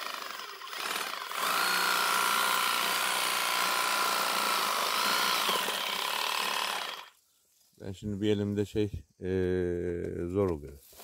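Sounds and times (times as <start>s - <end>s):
electric shear whining: 0.0s - 7.2s.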